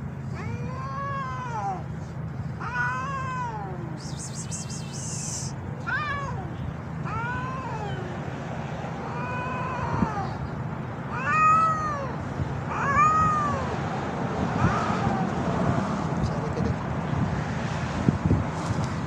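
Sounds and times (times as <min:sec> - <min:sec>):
cats yowling: 0:00.3 - 0:01.9, 0:02.6 - 0:10.5, 0:11.1 - 0:16.2.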